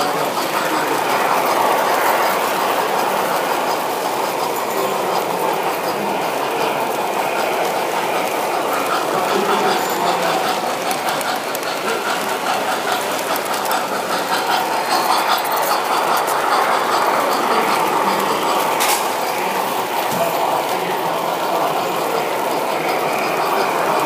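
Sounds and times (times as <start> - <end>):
model train rumbling on track: 0.0 - 24.0
wheels clicking over rail joints: 7.6 - 24.0.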